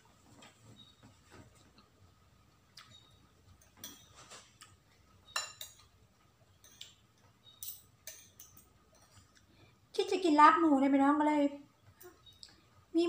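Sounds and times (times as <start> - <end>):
cutlery clinking against bowl: 3.6 - 6.0, 6.6 - 9.4.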